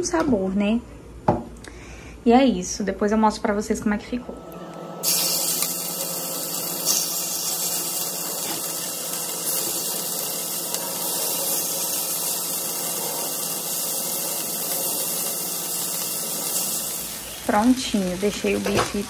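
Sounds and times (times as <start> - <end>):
steaks sizzling in frying pan: 5.0 - 19.0.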